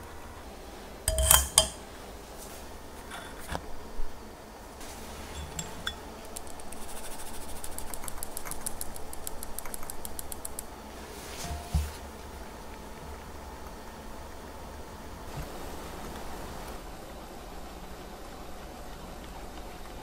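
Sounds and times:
metal sieve ticking: 0:01.1 - 0:01.8, 0:05.3 - 0:06.8
scattered clicks: 0:06.2 - 0:10.7
soft knock: 0:11.4 - 0:12.0.

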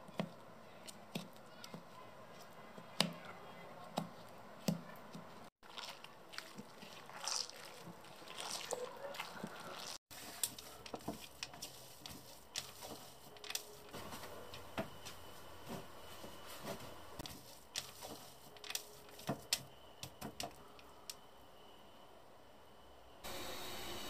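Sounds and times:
fruit pulp squishing: 0:00.0 - 0:14.0, 0:17.2 - 0:20.6.

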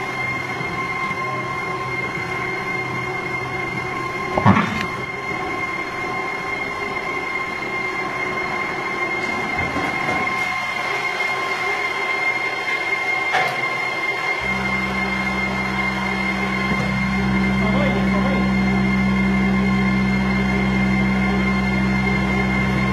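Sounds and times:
machine whine: 0:00.0 - 0:22.9
deep steady hum: 0:03.1 - 0:07.4, 0:14.4 - 0:22.9.

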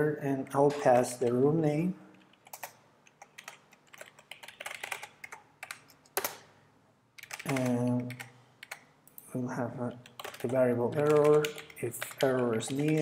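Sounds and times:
person speaking: 0:00.0 - 0:02.8, 0:07.2 - 0:13.0
computer keyboard typing: 0:02.1 - 0:06.5, 0:07.2 - 0:08.9, 0:09.9 - 0:13.0.

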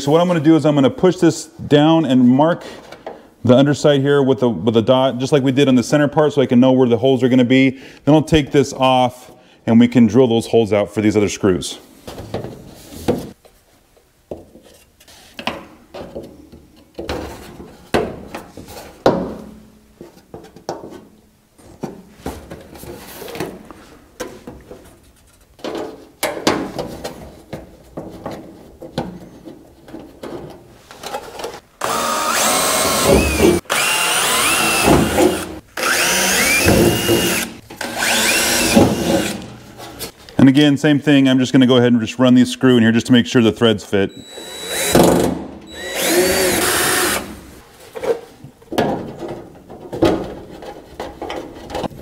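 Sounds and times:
handling knocks and rustles: 0:12.0 - 0:31.7, 0:47.7 - 0:52.0
cordless drill drilling into metal: 0:31.8 - 0:39.5, 0:44.2 - 0:47.3.

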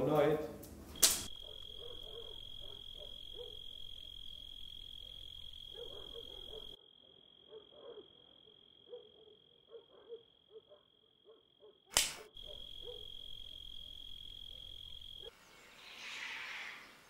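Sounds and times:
steady high-pitched whine: 0:00.9 - 0:06.8, 0:12.4 - 0:15.3
frogs croaking faintly: 0:01.0 - 0:17.0.

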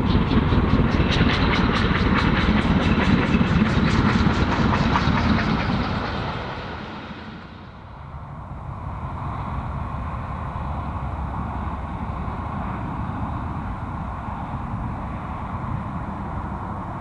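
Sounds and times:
steam locomotive passing: 0:00.0 - 0:17.0.

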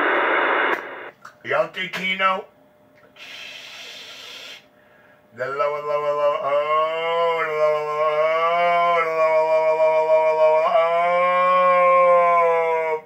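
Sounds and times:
droning radio transmission: 0:00.0 - 0:02.5, 0:03.2 - 0:04.7
steady low hum: 0:00.0 - 0:13.0.

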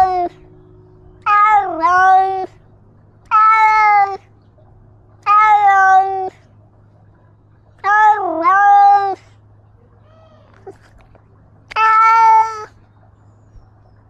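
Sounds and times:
cat meowing loudly: 0:01.2 - 0:02.5, 0:03.3 - 0:04.2, 0:05.2 - 0:06.4, 0:07.8 - 0:09.2, 0:11.7 - 0:12.7.

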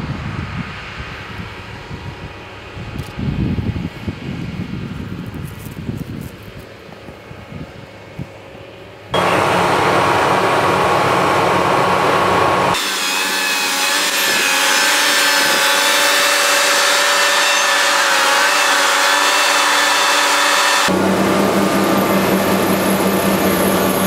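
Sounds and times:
vibrator trucks machine noise: 0:09.1 - 0:24.0.

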